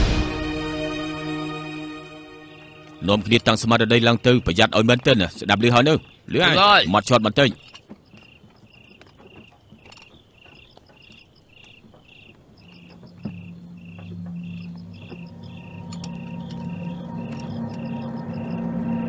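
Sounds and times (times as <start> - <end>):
crickets chirping: 0.4 - 19.0
low steady drone: 12.8 - 19.0.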